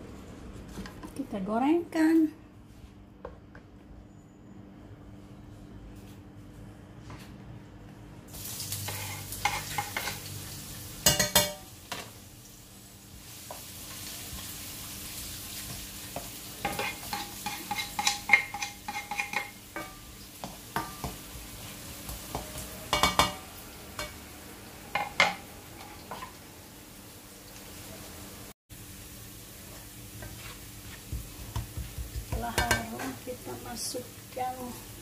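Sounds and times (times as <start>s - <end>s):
food sizzling in oil: 8.3s - 35.0s
utensil scraping a pan: 8.8s - 10.3s, 16.6s - 20.0s, 30.2s - 31.5s.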